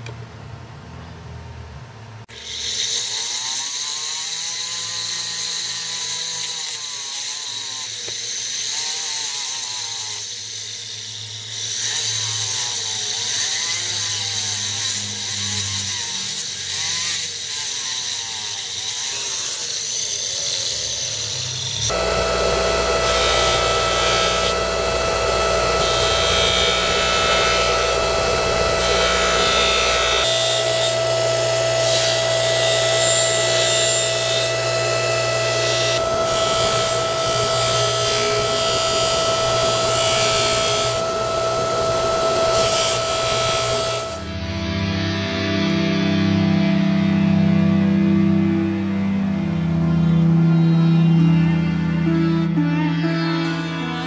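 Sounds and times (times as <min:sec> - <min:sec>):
rotary tool grinding metal: 0:02.3 - 0:44.3
polishing motor running: 0:21.8 - 0:44.4.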